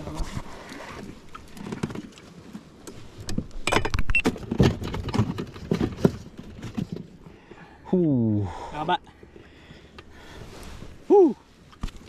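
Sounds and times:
knocks and rattles: 3.4s - 7.2s.

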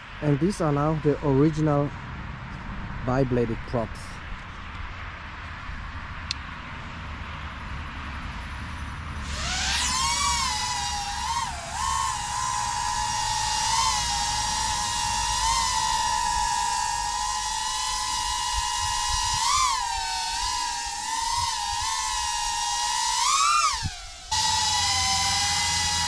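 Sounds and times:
drone motors whining: 9.2s - 26.0s.

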